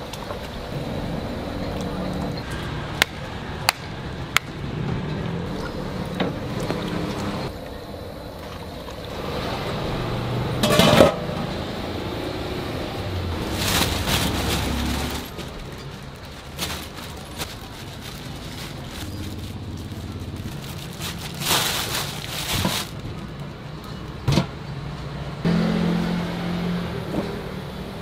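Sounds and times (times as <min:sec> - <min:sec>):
road traffic: 0:00.0 - 0:28.0
plastic bags rustling: 0:13.1 - 0:23.6.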